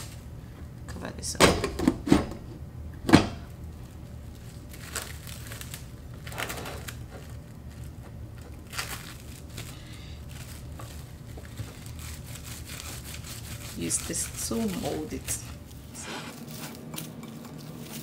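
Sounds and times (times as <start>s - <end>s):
cling film crinkling: 3.7s - 18.0s.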